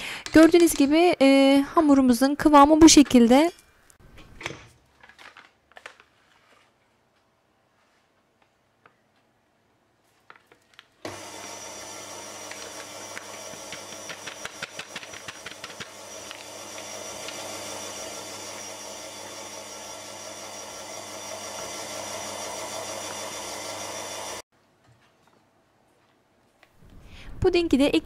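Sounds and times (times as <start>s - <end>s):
electric stand mixer running: 11.1s - 24.4s.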